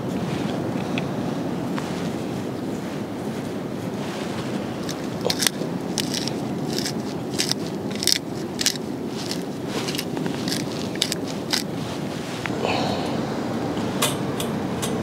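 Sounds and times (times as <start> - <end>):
wind: 0.0 - 15.0
herbs crackling and rustling: 4.0 - 12.5.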